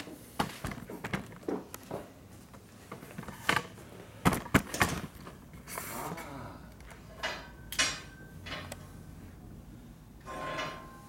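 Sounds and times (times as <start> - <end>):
objects knocking and clattering: 0.0 - 5.4.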